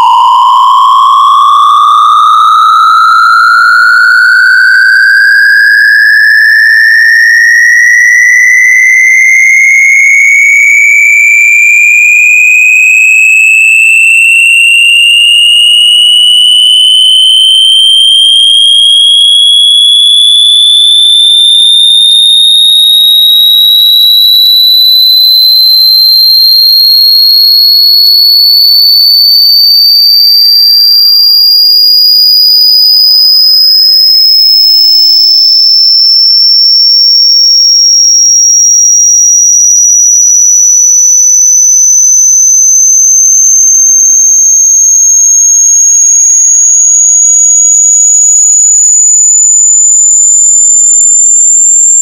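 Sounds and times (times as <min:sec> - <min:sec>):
rising synthesized electronic tone: 0:00.0 - 0:03.3.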